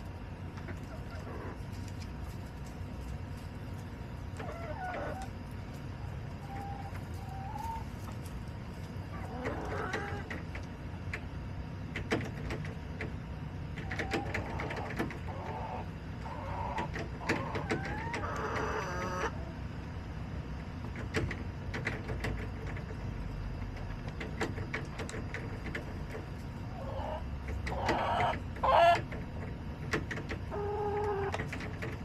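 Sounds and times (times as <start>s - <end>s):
hens clucking: 0.0s - 11.3s, 13.7s - 19.6s, 23.8s - 32.0s.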